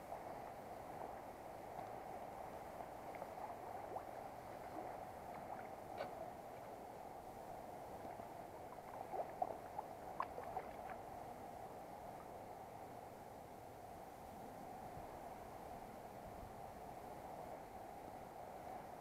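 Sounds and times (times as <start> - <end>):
stream water flowing and gurgling: 0.0 - 19.0.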